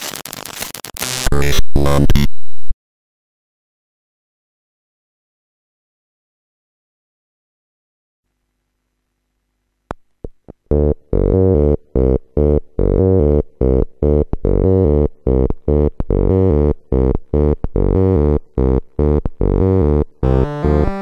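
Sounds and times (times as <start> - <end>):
buzzy low synth notes: 10.7 - 21.0
higher keyboard notes: 19.0 - 21.0.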